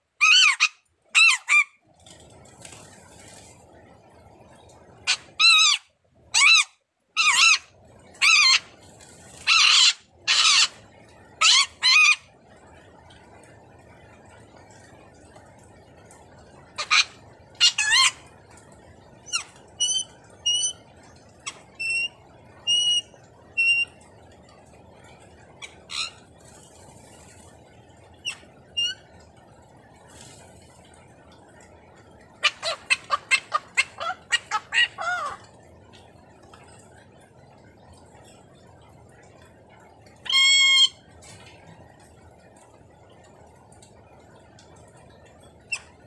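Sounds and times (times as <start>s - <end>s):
parrots whistling: 0.2s - 1.7s, 5.1s - 5.8s, 6.4s - 8.7s, 9.4s - 10.8s, 11.4s - 12.2s, 16.8s - 18.2s, 19.3s - 20.8s, 21.5s - 23.9s, 32.4s - 35.4s, 40.3s - 41.0s
parrots screeching: 0.2s - 1.8s, 5.1s - 5.8s, 6.4s - 8.7s, 9.4s - 10.8s, 11.4s - 12.3s, 16.8s - 18.2s, 25.6s - 26.2s, 32.4s - 35.5s, 40.3s - 41.0s.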